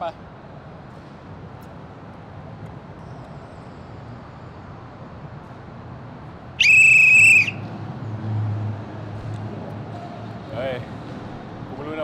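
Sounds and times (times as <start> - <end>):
shrill whistle blast: 6.6 - 7.6.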